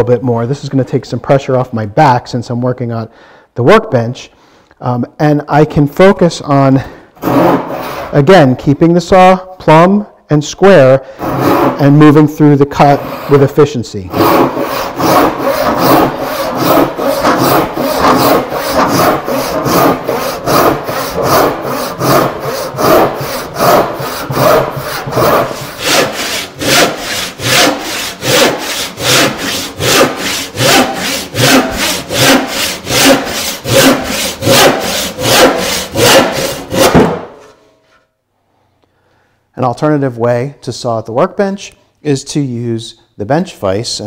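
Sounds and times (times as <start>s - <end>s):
handsaw cutting wood: 7.2s - 8.2s, 11.2s - 37.4s.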